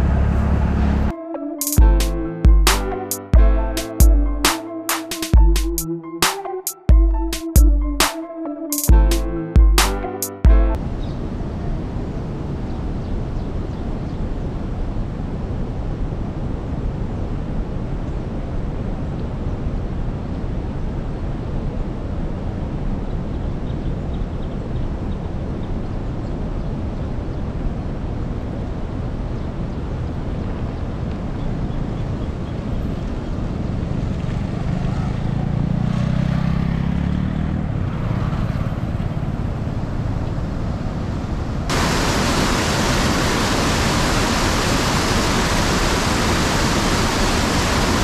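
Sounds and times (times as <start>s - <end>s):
background music: 1.1s - 10.8s.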